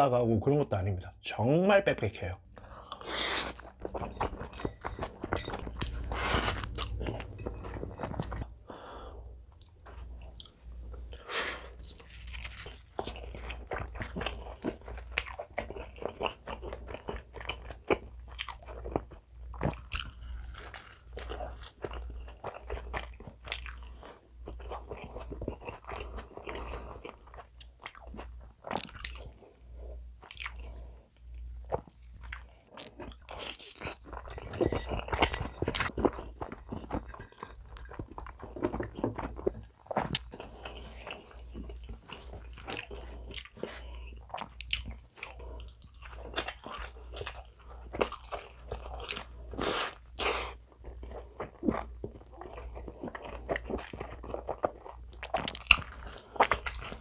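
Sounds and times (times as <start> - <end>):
wet chewing: 2.5 - 11.2, 11.8 - 29.4, 30.2 - 57.0
spaghetti slurping: 2.9 - 8.6.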